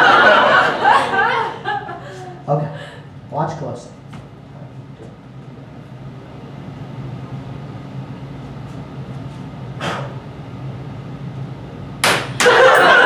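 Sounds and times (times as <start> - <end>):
audience laughing: 0.0 - 2.4, 12.4 - 13.0
low steady hum: 0.0 - 13.0.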